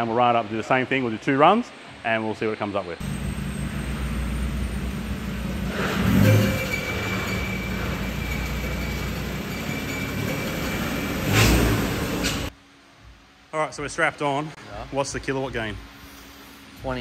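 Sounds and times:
faint high whine: 3.0s - 11.4s
diesel engine running: 3.0s - 12.5s.

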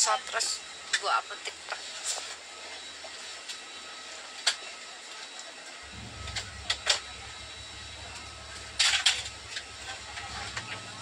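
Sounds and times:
airliner cabin hum: 5.9s - 11.0s.

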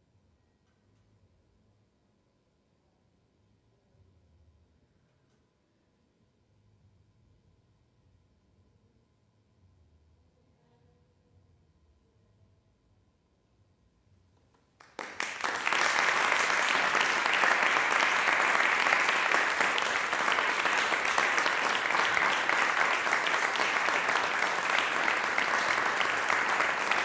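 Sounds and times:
audience applauding: 14.8s - 27.0s.

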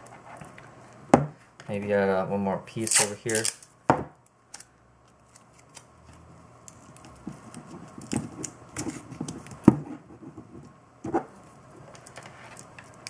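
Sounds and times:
masking tape crinkling: 2.8s - 3.7s.

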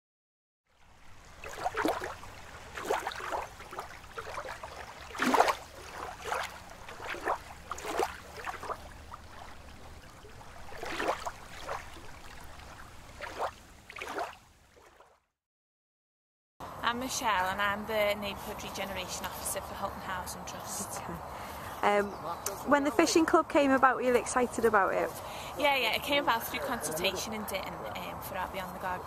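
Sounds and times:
water splashing and sloshing: 0.7s - 15.4s.

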